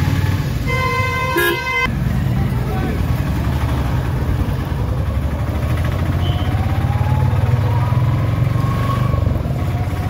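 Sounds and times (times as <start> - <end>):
motorcycles passing: 0.0 - 10.0
motorcycle engines idling: 2.0 - 6.7.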